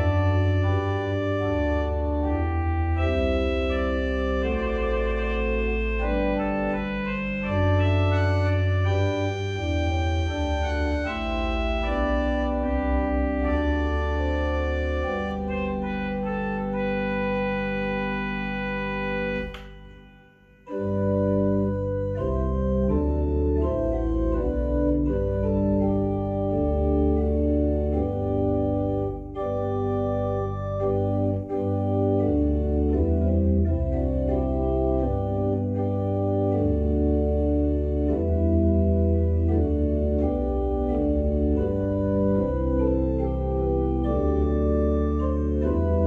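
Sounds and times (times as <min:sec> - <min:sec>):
organ playing a hymn: 0:00.0 - 0:46.0
short click: 0:19.5 - 0:20.0.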